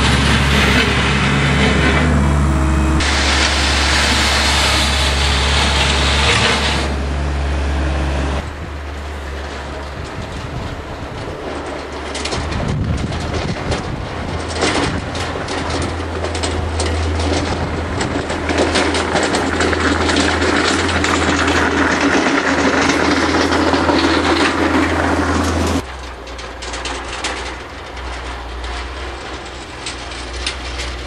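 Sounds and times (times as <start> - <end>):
loader engine running: 0.0 - 31.0
plough blade scraping snow: 0.0 - 31.0.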